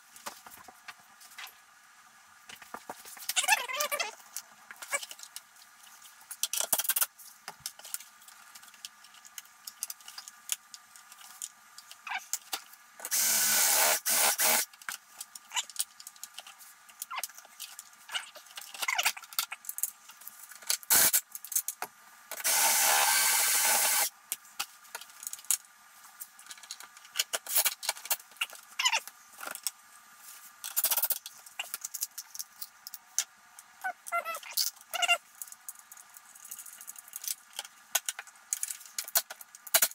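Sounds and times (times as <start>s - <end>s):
cordless drill running: 13.1s - 14.6s, 22.4s - 24.1s.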